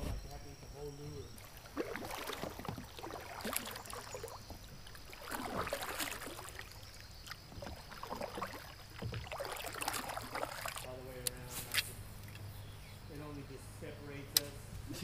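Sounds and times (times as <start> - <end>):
paddle pulling through water: 1.2 - 11.3
water splashing and dripping: 1.3 - 11.4.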